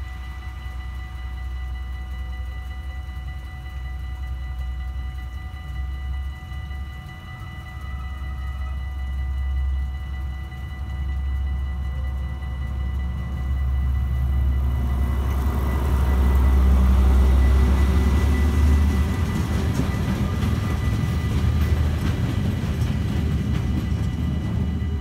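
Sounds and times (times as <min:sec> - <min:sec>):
crossing warning bells: 0:00.0 - 0:25.0
freight train rumbling past: 0:05.7 - 0:25.0
wheels clattering: 0:12.9 - 0:25.0.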